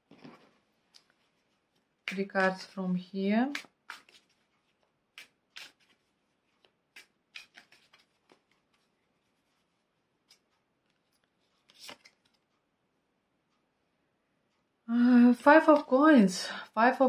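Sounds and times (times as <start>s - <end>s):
cards clicking and rustling: 3.5s - 9.0s, 10.2s - 12.5s.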